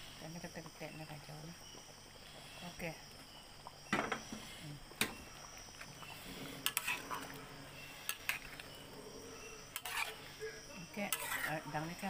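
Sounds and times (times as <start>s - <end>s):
metal spatula scraping a wok: 6.0s - 12.0s.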